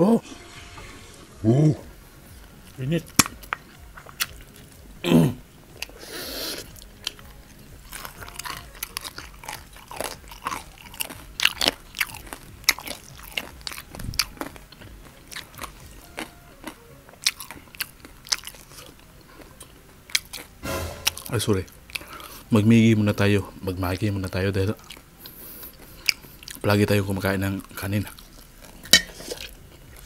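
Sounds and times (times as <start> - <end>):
chewing and crunching: 2.4 - 5.0, 5.7 - 20.6, 23.9 - 30.0.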